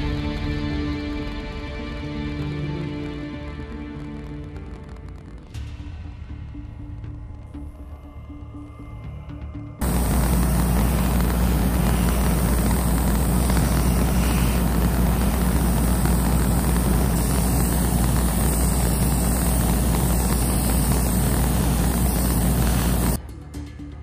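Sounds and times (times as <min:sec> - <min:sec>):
airbrush spraying paint: 0:09.8 - 0:23.2
exhaust fan running: 0:09.8 - 0:23.2.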